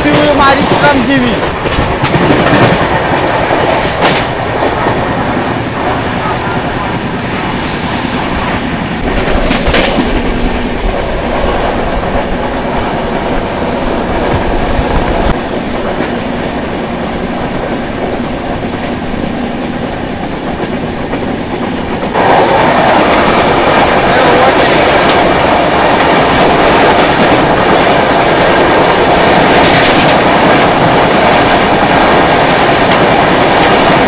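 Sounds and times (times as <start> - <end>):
train rumble and rattle: 0.0 - 34.0.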